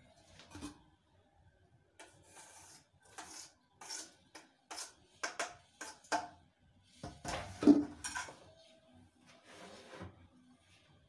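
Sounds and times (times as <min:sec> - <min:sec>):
clatter of kitchenware: 0:07.0 - 0:08.4.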